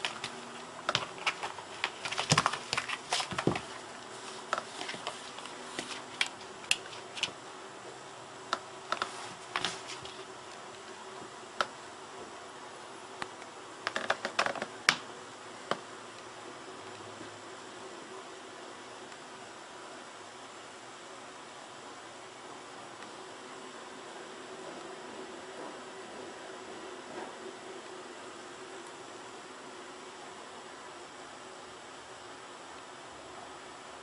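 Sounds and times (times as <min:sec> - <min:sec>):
cat scuffling on carpet: 0:00.0 - 0:07.4, 0:09.0 - 0:10.3.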